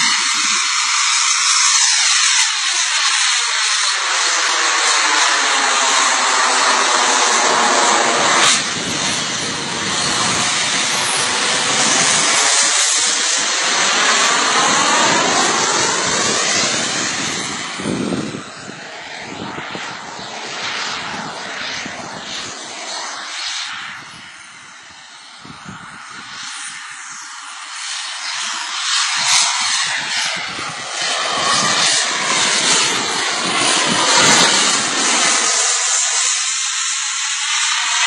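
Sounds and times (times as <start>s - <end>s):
jet turbine engine flying past: 0.0s - 38.0s.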